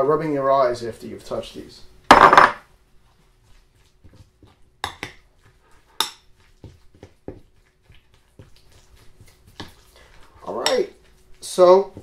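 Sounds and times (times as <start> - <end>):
fork clinking and scraping glass bowl: 6.0 - 6.3.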